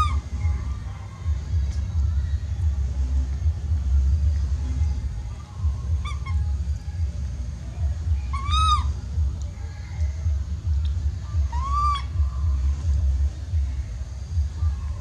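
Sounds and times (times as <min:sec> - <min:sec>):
baby monkey crying coos: 0:00.0 - 0:00.3, 0:05.9 - 0:06.5, 0:08.3 - 0:09.0, 0:11.4 - 0:12.2
steady low rumble: 0:00.0 - 0:15.0.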